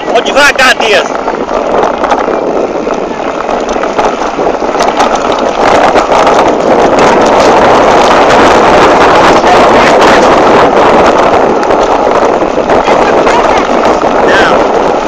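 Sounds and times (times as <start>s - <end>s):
bike rattling and knocking: 0.0s - 15.0s
wind buffeting microphone: 0.0s - 15.0s.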